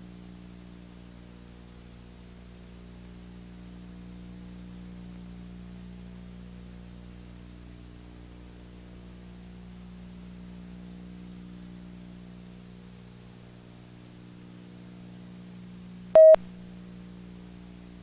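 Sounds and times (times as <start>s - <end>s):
electrical hum and hiss: 0.0s - 18.0s
electronic beep: 16.2s - 16.4s.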